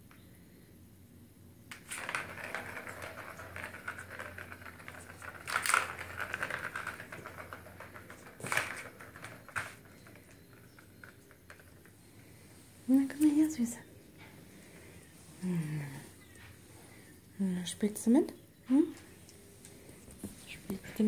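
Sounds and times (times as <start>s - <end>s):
paw knocking plastic track: 1.7s - 11.9s
plastic ball rattling on track: 1.7s - 12.4s.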